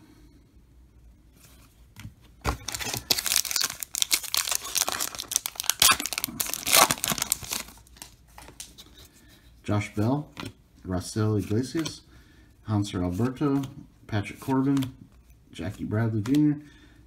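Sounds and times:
card pack wrapper crinkling: 2.5s - 8.8s.

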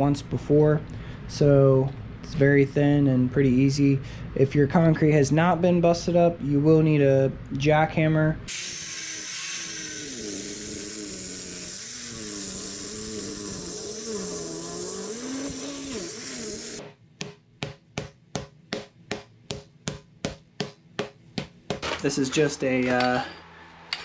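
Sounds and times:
angle grinder cutting concrete: 8.5s - 16.8s.

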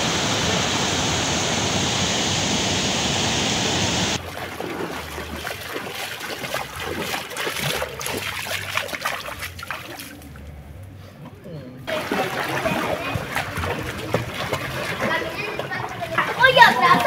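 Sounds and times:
floodwater rushing: 0.0s - 10.4s, 11.9s - 17.0s
splashes of wading: 3.5s - 10.8s, 11.9s - 17.0s.

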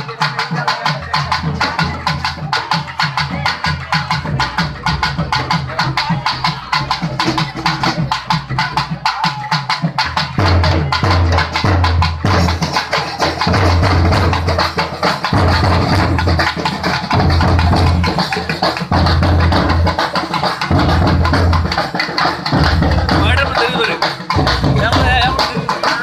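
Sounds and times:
fast percussion: 0.0s - 26.0s
loud music over sound system: 22.6s - 26.0s.

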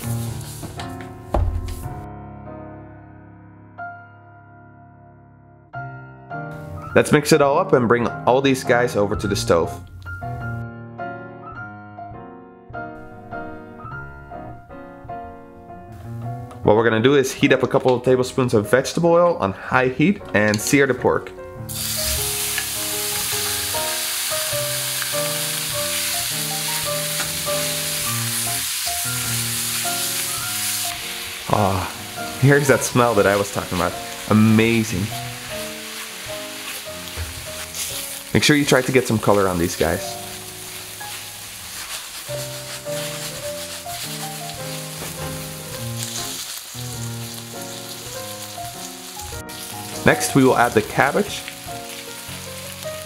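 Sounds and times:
meat sizzling in a skillet: 0.0s - 0.8s, 21.7s - 53.0s
background music: 0.0s - 53.0s.

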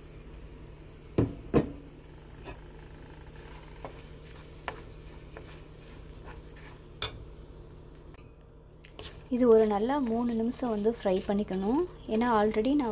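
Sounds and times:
low steady sizzle: 0.0s - 12.9s
spoon tapping and scraping pan: 3.8s - 5.6s.

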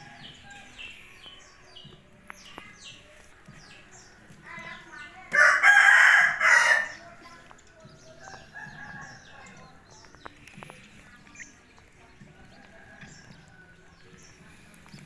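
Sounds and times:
rooster crowing: 5.4s - 6.9s.

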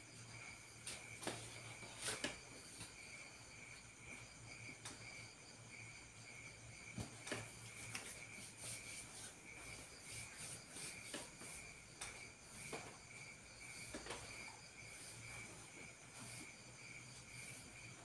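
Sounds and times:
crickets chirping: 0.0s - 18.0s
hands rubbing skin: 7.6s - 9.4s.

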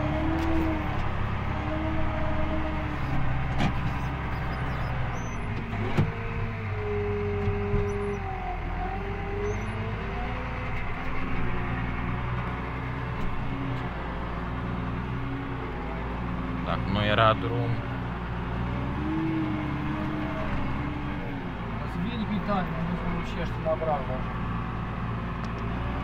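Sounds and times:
engine whine: 0.0s - 26.0s
tractor engine running under load: 0.0s - 26.0s.

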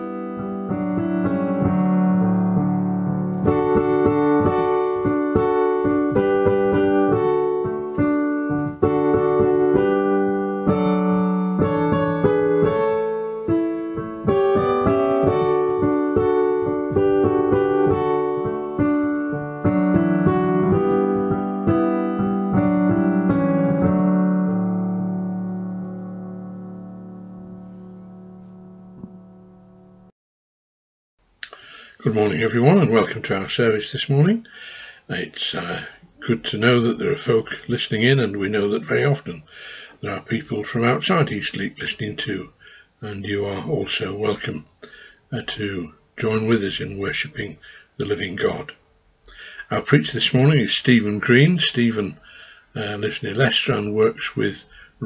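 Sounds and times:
piano music: 0.0s - 30.1s.

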